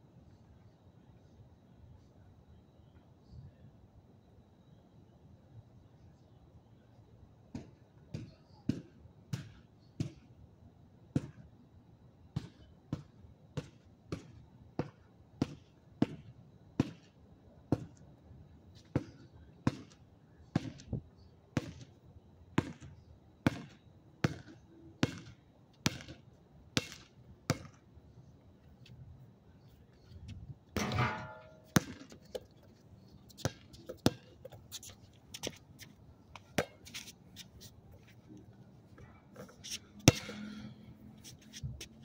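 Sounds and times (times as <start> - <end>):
basketball bouncing: 23.5 - 26.2, 26.8 - 27.8, 30.8 - 32.4, 33.4 - 34.6.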